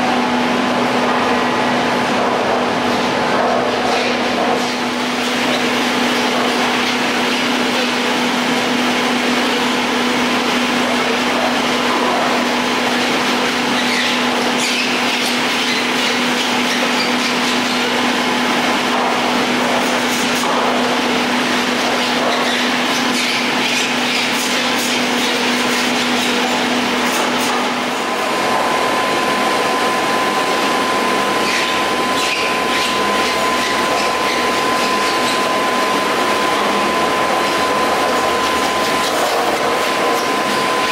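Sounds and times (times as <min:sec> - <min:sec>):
chairlift machinery hum: 0:00.0 - 0:40.9
high steady whine: 0:00.0 - 0:40.9.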